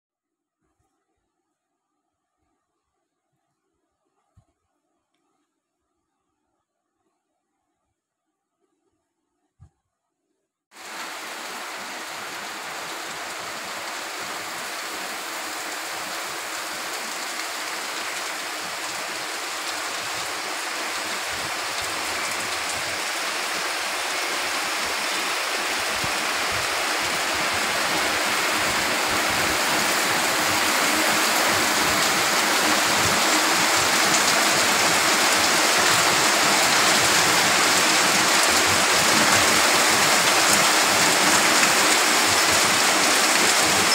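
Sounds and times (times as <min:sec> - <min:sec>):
heavy rain pouring: 0:10.7 - 0:43.9.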